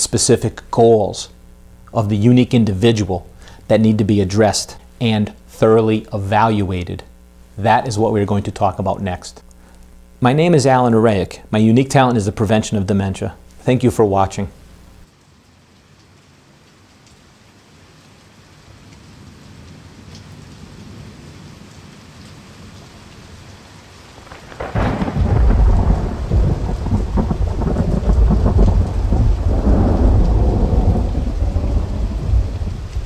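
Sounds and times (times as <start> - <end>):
rain hissing: 0.0 - 15.2, 15.8 - 33.0
thunder crack and rumble: 24.2 - 33.0.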